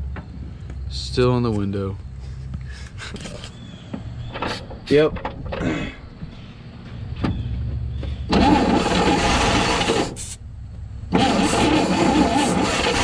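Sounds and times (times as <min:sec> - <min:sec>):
engine cranking by starter: 0:03.1 - 0:06.1, 0:07.3 - 0:13.0.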